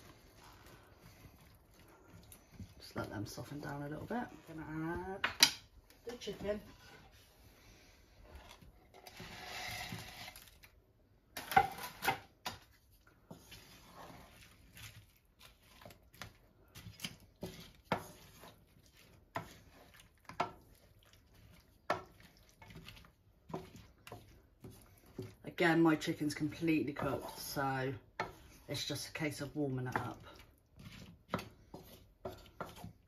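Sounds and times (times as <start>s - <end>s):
spatula scraping pan: 0.0s - 10.8s, 11.4s - 33.0s
food sliding into pan rustle: 6.8s - 10.8s.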